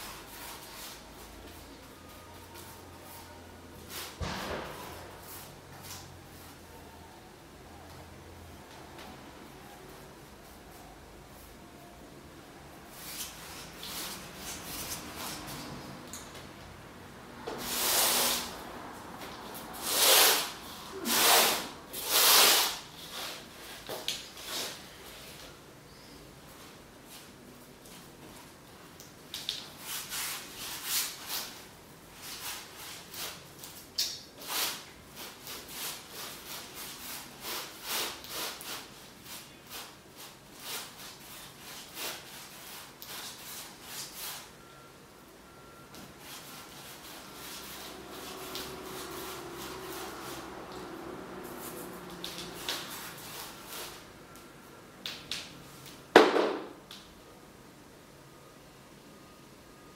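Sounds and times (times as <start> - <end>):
painting tool rubbing on canvas: 19.8 - 23.8.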